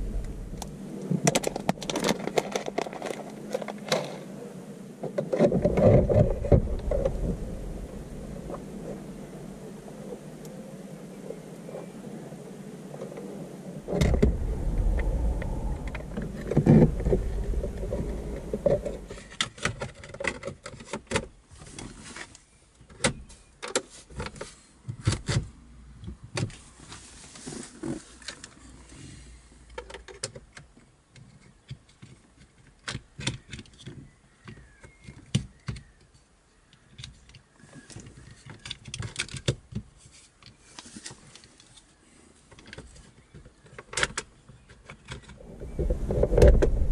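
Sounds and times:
dull low rumble: 0:00.0 - 0:19.4, 0:45.4 - 0:46.9.

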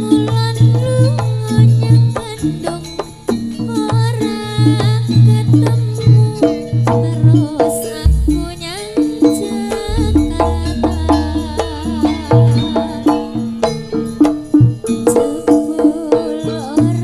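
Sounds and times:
drums beating steady rhythm: 0:07.8 - 0:15.1
deep low drum strokes: 0:08.0 - 0:09.2, 0:09.9 - 0:13.3
struck metallophone notes: 0:08.0 - 0:14.7.

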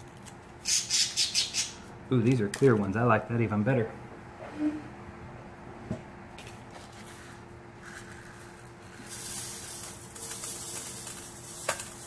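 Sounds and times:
grains pouring through metal sieve: 0:07.9 - 0:12.0.

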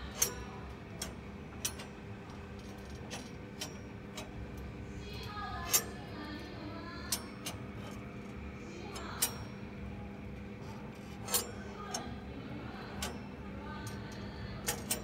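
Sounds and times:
low electrical hum: 0:00.0 - 0:15.0
faint voices: 0:04.9 - 0:15.0.

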